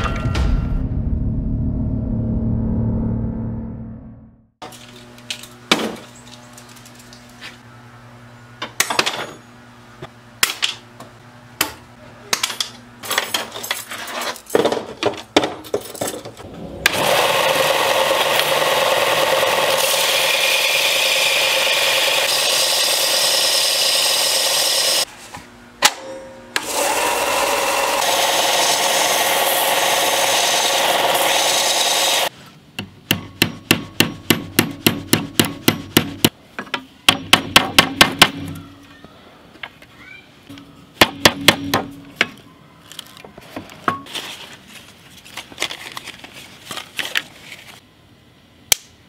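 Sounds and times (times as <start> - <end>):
belt sander grinding steel: 16.8 - 25.1, 26.6 - 32.3
hammer striking on anvil: 25.8 - 26.6, 33.1 - 38.6, 40.5 - 42.4.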